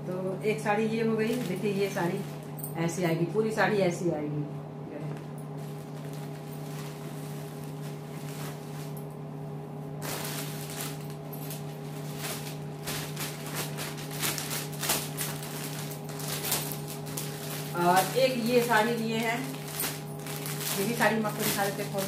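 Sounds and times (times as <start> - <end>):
cloth rustling: 5.5 - 22.0
plastic packet crinkling: 5.6 - 9.0, 10.0 - 22.0.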